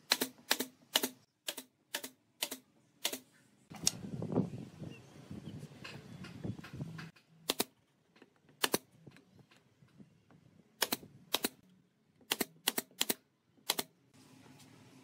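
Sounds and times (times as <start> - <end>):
nail gun firing: 0.0 - 3.2, 7.4 - 7.8, 8.6 - 8.9, 10.8 - 11.6, 12.3 - 13.9.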